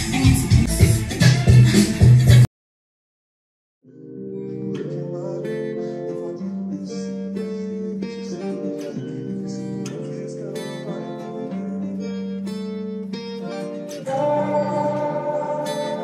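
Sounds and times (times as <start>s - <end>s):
acoustic guitar strumming chords: 4.0s - 16.0s.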